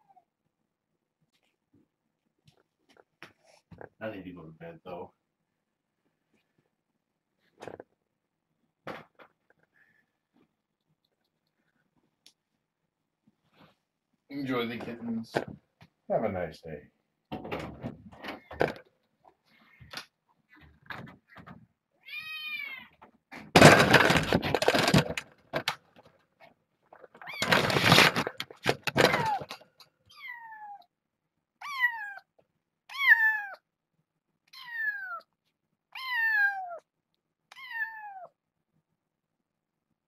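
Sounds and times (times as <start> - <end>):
kitten meowing: 31.6 - 32.3, 32.9 - 33.6, 34.5 - 35.3, 35.9 - 36.8, 37.5 - 38.3.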